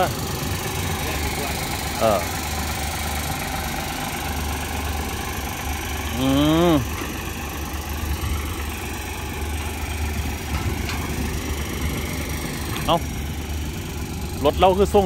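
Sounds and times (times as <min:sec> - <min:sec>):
truck diesel engine idling: 0:00.0 - 0:15.0.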